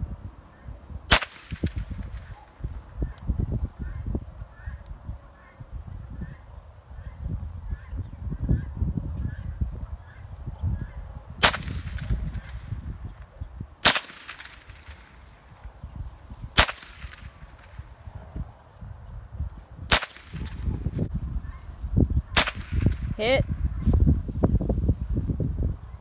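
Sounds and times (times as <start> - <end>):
rifle shots with echo: 1.1 - 2.5, 11.4 - 12.7, 13.8 - 15.5, 16.6 - 17.9, 19.9 - 20.7, 22.3 - 23.1.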